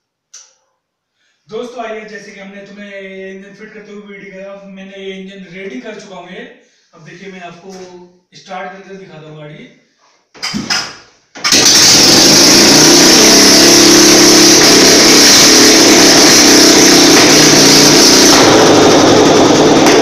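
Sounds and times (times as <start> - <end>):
motorcycle engine starting and running: 11.4 - 20.0.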